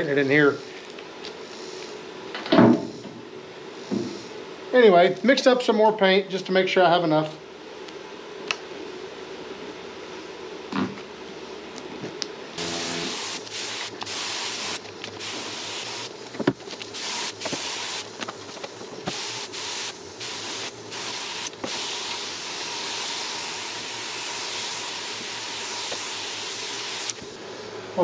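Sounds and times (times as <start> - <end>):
air spray gun hissing: 12.6 - 16.1, 16.9 - 18.1, 19.0 - 27.3.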